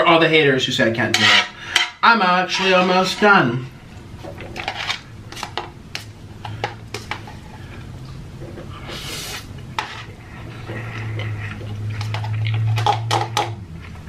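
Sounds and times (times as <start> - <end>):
wet eating noises: 6.0 - 14.0.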